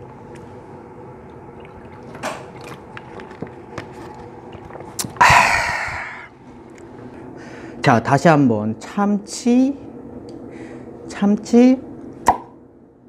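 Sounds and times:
person gulping water: 1.2 - 6.9
breathy exhale: 7.4 - 7.8, 10.5 - 11.0.

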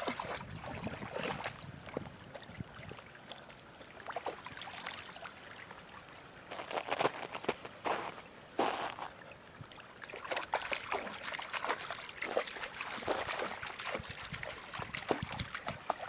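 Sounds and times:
dog splashing through water: 0.0 - 1.6, 10.1 - 16.0.

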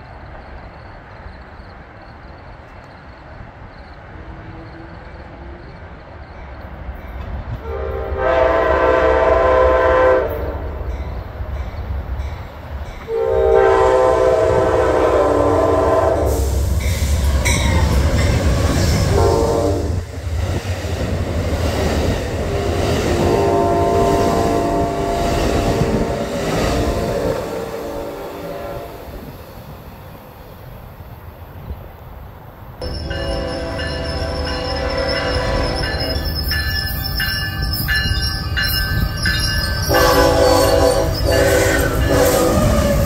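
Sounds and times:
locomotive and wheels rumbling: 0.0 - 43.0
train horn: 7.6 - 11.0, 13.0 - 16.6, 19.0 - 20.0, 22.5 - 29.2, 32.8 - 36.4, 39.8 - 43.0.

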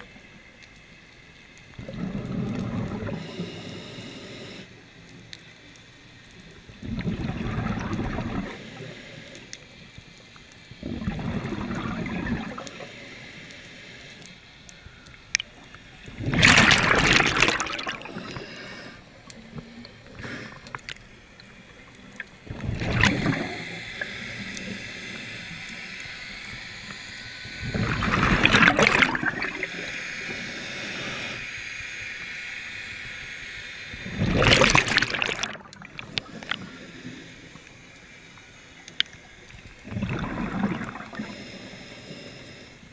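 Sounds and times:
exhaled bubbles rushing: 1.8 - 3.2, 6.8 - 8.6, 10.8 - 12.7, 16.1 - 18.4, 22.4 - 23.7, 27.6 - 29.9, 34.1 - 36.6, 39.8 - 41.3
regulator hiss: 17.5 - 22.2, 29.3 - 34.2, 40.9 - 42.9.

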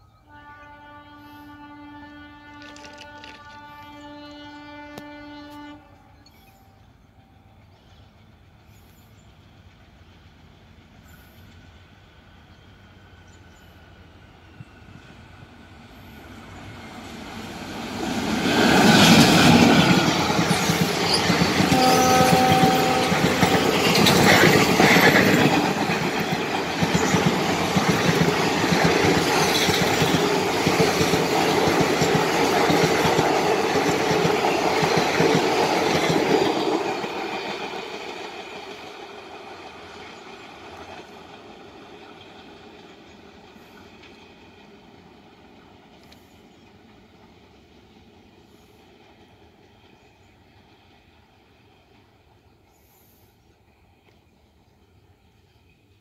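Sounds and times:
diesel locomotive passing: 0.0 - 56.0
train horn: 0.2 - 7.6, 21.1 - 25.8.

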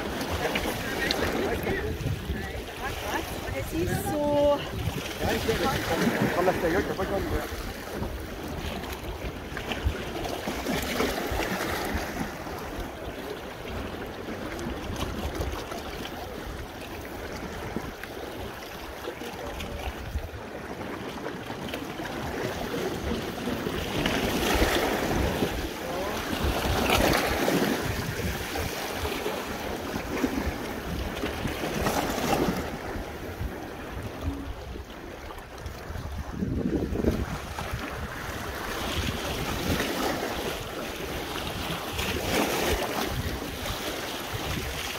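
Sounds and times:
wind blowing across microphone: 0.0 - 12.9, 22.2 - 44.9
small waves washing against rocks: 0.0 - 44.9.

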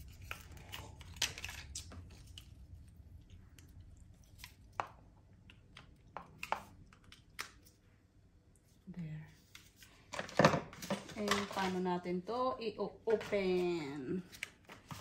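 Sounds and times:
packaging crinkling: 0.0 - 2.7.

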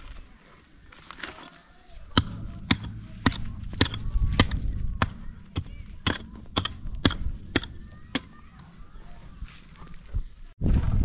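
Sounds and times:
low steady hum: 2.0 - 10.5
sharp knocks: 2.1 - 8.7.

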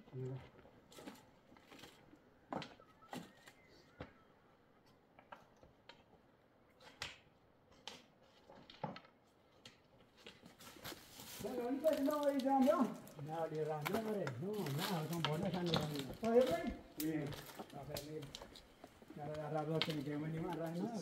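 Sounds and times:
footsteps on gravel: 10.8 - 21.0.

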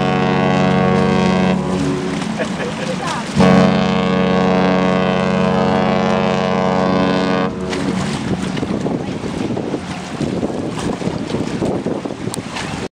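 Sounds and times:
ship's horn blast: 0.0 - 11.6
water noise: 0.0 - 12.9
wind on microphone: 3.2 - 12.9.

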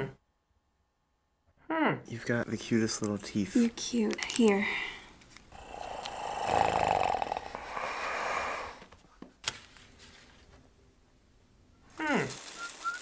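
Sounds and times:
man's raspy rattling breath: 5.5 - 8.9.

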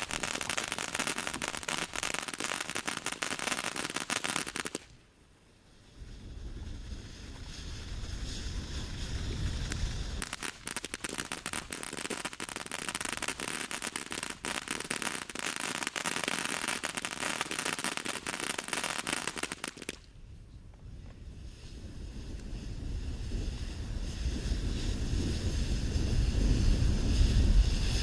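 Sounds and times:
firework fountain crackling: 0.0 - 5.0, 5.7 - 20.2, 21.2 - 28.0
wind rumble on microphone: 5.6 - 15.2, 20.0 - 28.0.

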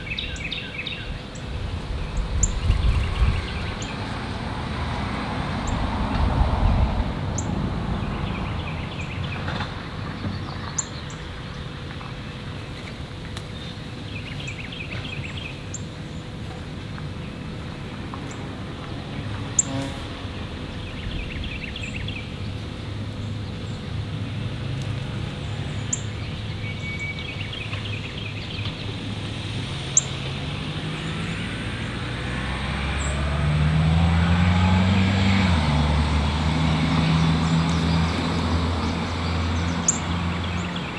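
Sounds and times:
small bird singing: 0.0 - 4.0, 8.1 - 9.4, 10.2 - 11.3, 13.5 - 16.3, 20.7 - 23.9, 25.4 - 28.9, 38.8 - 40.9
steady road noise: 0.0 - 40.9
vehicle passing close: 1.7 - 10.8, 27.5 - 40.9.

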